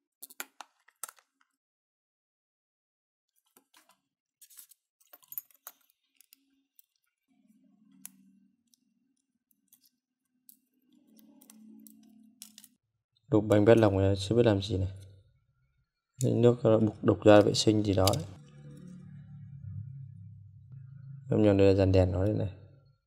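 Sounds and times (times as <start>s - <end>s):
plastic parts clicking and tapping: 17.4s - 18.4s.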